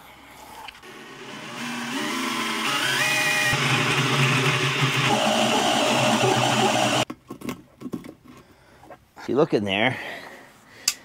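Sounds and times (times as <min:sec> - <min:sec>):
cordless drill drilling into metal: 0:01.0 - 0:07.0.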